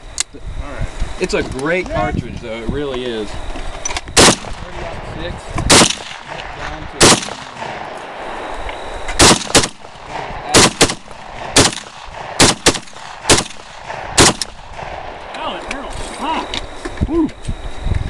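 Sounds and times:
rifle shots: 0:04.1 - 0:04.9, 0:05.6 - 0:08.5, 0:09.1 - 0:15.4.

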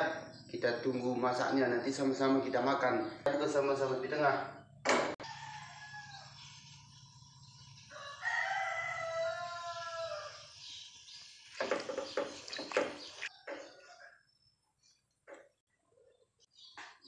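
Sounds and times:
rooster crowing: 0:05.2 - 0:06.5, 0:07.9 - 0:10.5.

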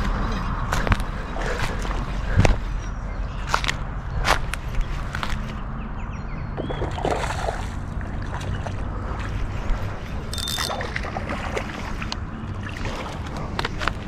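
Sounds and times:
wind: 0:00.0 - 0:14.0
fishing reel winding: 0:10.3 - 0:10.8.

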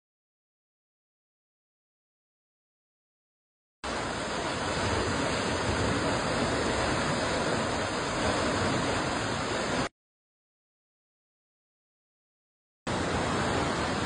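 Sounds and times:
river water rushing: 0:03.8 - 0:09.9, 0:12.9 - 0:14.0.

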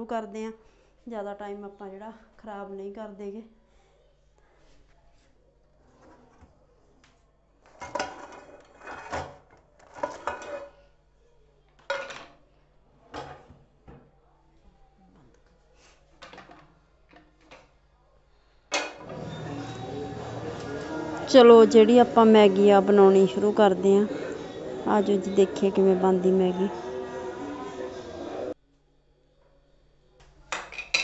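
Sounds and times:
steady background noise: 0:19.0 - 0:28.6.

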